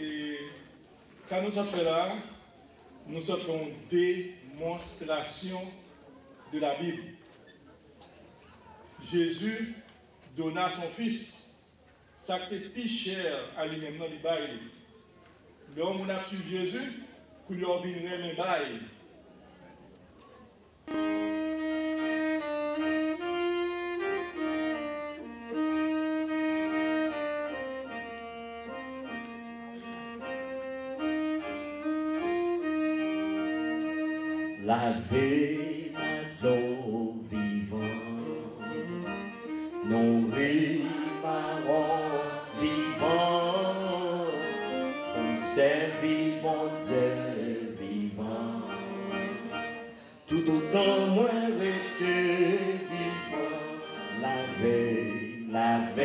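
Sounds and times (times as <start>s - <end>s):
hymn melody with long held notes: 20.8s - 56.0s
man singing: 34.6s - 49.5s, 50.3s - 56.0s.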